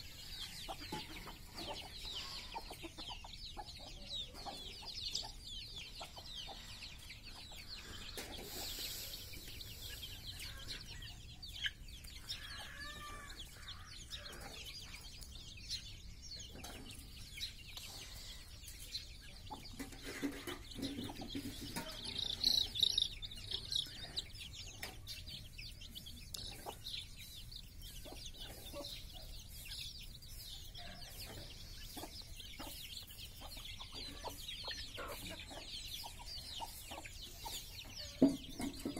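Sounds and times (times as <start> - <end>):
chicks peeping: 0.0 - 38.9
hens clucking: 0.0 - 38.9.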